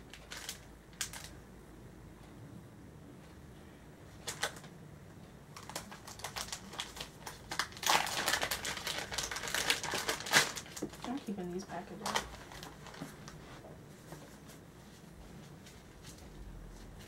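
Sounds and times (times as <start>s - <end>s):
plastic packaging crinkling: 0.0s - 1.4s, 4.2s - 4.7s, 5.5s - 13.4s.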